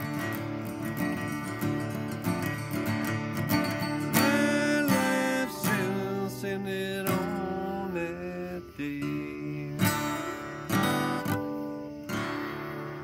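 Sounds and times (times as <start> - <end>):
strummed acoustic guitar: 0.0 - 13.0
man singing: 4.0 - 10.9.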